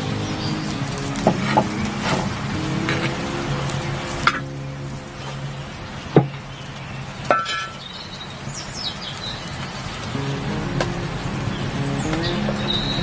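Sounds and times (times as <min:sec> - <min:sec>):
metal pan clinking on grill: 0:07.3 - 0:07.8.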